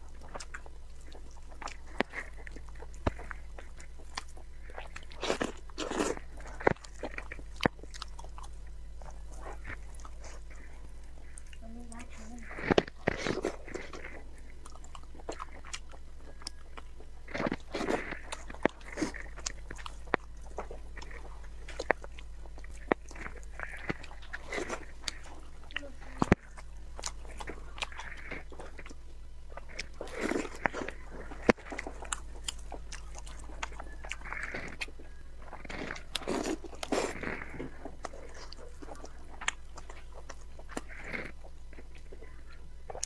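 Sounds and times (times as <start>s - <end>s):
wet chewing and lip-smacking: 0.0s - 43.0s.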